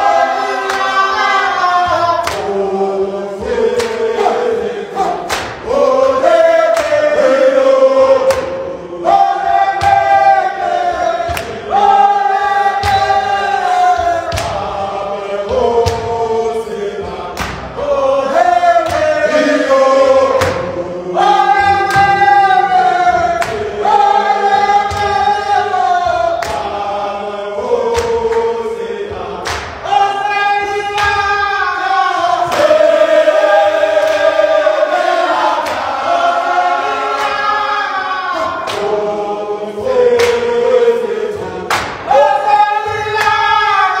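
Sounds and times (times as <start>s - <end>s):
men singing a chant: 0.0s - 44.0s
sharp hand claps: 0.6s - 1.0s, 2.2s - 2.6s, 3.7s - 4.2s, 5.0s - 5.8s, 6.4s - 7.2s, 8.2s - 8.6s, 9.8s - 10.3s, 11.2s - 11.6s, 12.8s - 13.3s, 14.0s - 14.7s, 15.8s - 16.1s, 17.3s - 17.8s, 18.8s - 19.2s, 20.3s - 20.7s, 21.6s - 22.5s, 23.3s - 23.7s, 24.8s - 25.4s, 26.3s - 26.8s, 27.8s - 28.5s, 29.4s - 29.8s, 30.9s - 31.4s, 32.5s - 32.8s, 34.0s - 34.3s, 35.5s - 36.0s, 38.6s - 39.0s, 40.1s - 40.5s, 41.7s - 42.1s, 42.9s - 43.5s.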